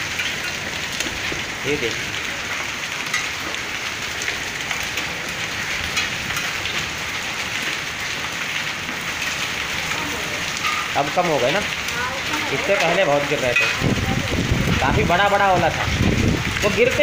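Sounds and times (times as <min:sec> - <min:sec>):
hailstones clicking on hard surfaces: 0:00.0 - 0:17.0
heavy rain and hail hiss: 0:00.0 - 0:17.0.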